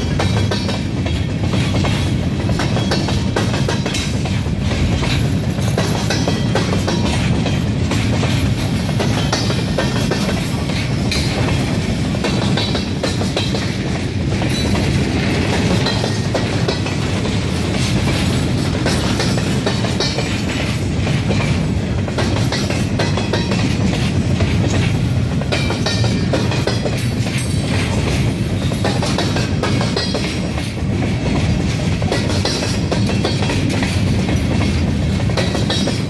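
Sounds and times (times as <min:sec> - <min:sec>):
train wheels rumbling on rails: 0:00.0 - 0:36.0
wheels clanking over rail joints: 0:00.0 - 0:36.0.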